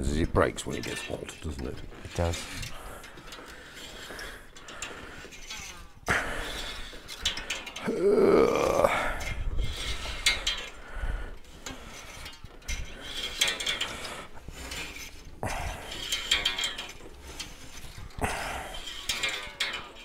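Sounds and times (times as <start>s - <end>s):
wire twanging and squealing: 11.4s - 20.0s.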